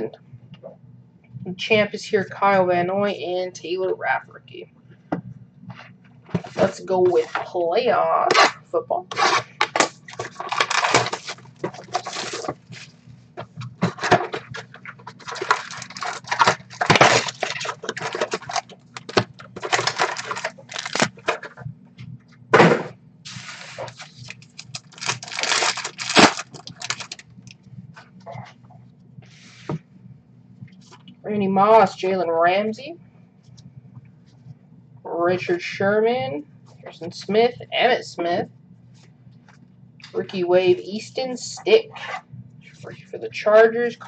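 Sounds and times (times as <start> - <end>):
faint low hum: 0.0 - 44.0
shrink-wrap crinkling and tearing: 9.1 - 12.6, 14.0 - 21.3, 23.6 - 27.2.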